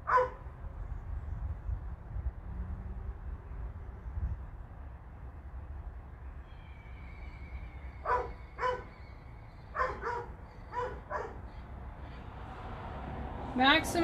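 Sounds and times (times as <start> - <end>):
dog barking: 0.0 - 0.4, 8.0 - 8.9, 9.8 - 11.4.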